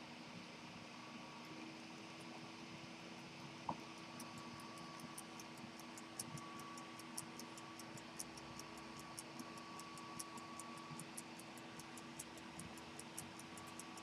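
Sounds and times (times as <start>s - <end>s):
pocket watch ticking: 3.8s - 14.0s.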